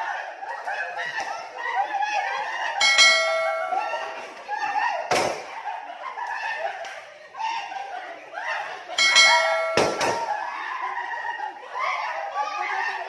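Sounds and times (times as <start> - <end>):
people laughing: 0.0 - 13.0
people shouting: 0.0 - 13.0.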